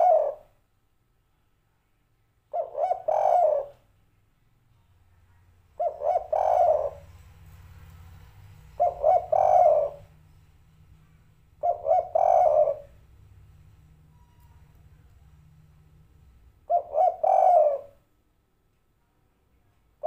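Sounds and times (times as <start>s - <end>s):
dove cooing: 0.0s - 0.5s, 2.5s - 3.9s, 5.8s - 10.2s, 11.5s - 13.2s, 16.6s - 18.0s.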